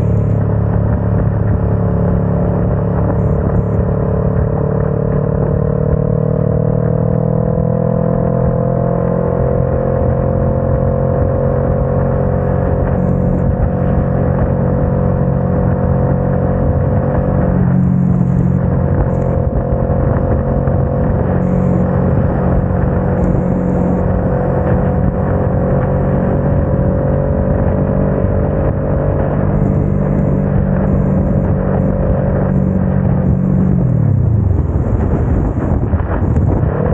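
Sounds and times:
motorcycle engine running: 0:00.0 - 0:36.9
wet road noise: 0:00.0 - 0:36.9
wind noise: 0:00.0 - 0:36.9.

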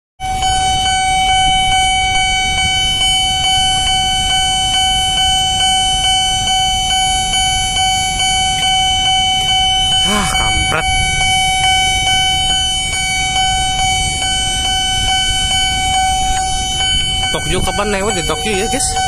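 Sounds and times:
level crossing alarm beating tone: 0:00.2 - 0:19.0
idling road traffic rumble: 0:08.2 - 0:19.0.

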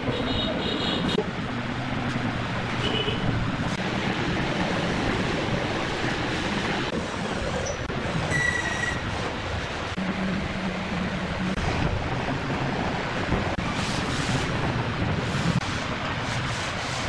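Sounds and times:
steady rushing noise: 0:01.1 - 0:08.3, 0:09.0 - 0:17.0.

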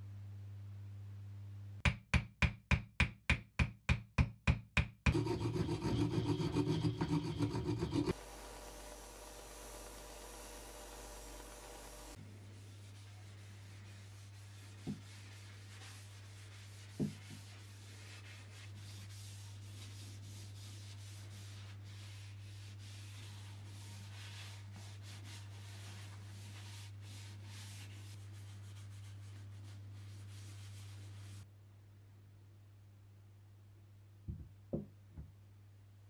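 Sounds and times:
paper towel wiping wood: 0:08.6 - 0:31.4.

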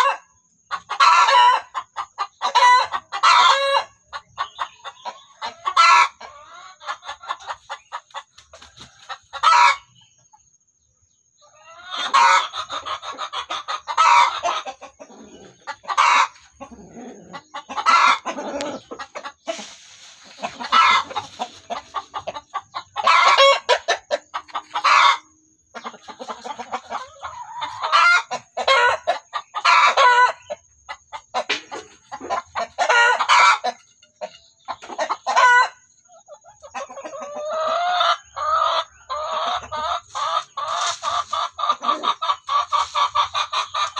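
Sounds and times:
hens clucking: 0:00.0 - 0:43.9.

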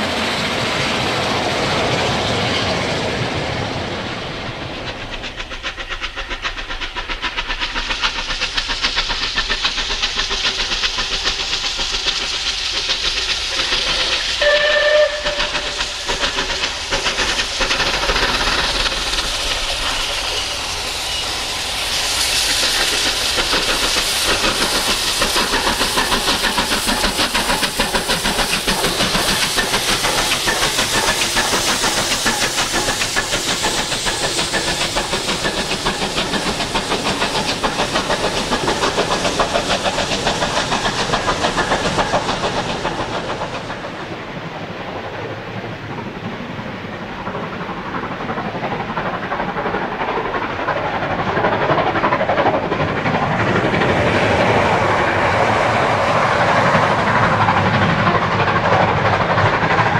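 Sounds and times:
steam locomotive exhaust beats: 0:00.0 - 0:59.9
steam locomotive whistle: 0:14.4 - 0:16.0.

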